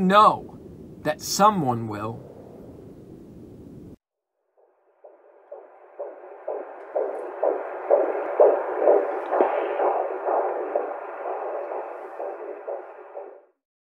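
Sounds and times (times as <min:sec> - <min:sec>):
fetal heartbeat whooshing pulse: 0:05.0 - 0:13.6.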